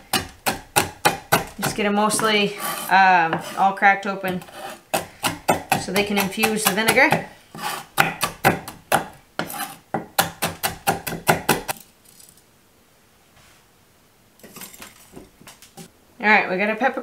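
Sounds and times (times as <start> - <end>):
knife crushing peppercorns on wood: 0.1 - 2.8.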